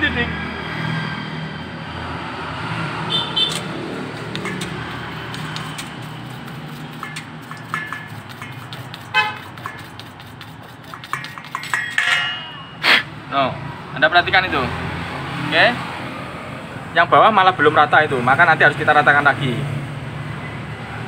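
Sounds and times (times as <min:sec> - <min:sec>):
traffic drone: 0:00.0 - 0:21.0
brush scrubbing metal: 0:03.4 - 0:12.6
horn toot: 0:09.1 - 0:09.5.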